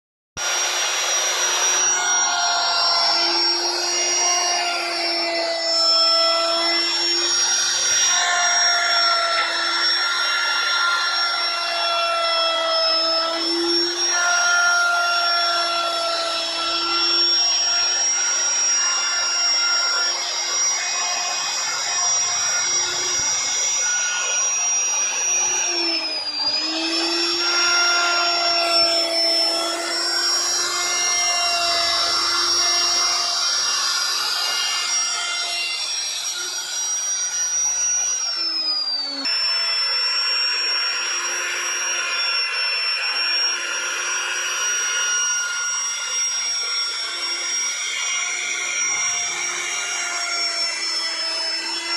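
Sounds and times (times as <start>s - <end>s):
router whining cutting wood: 0.4s - 51.9s.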